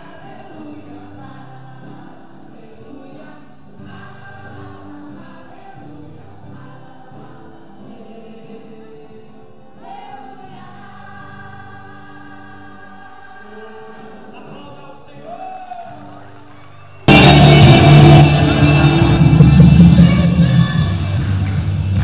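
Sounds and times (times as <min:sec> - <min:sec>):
choir singing gospel song: 0:00.0 - 0:22.0
loud distorted music: 0:17.1 - 0:22.0.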